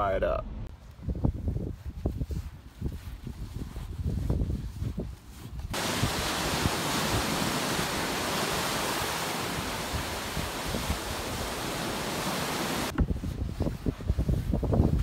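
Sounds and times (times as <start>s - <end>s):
wind gusts on microphone: 0.7s - 15.0s
surf hissing: 5.8s - 12.9s.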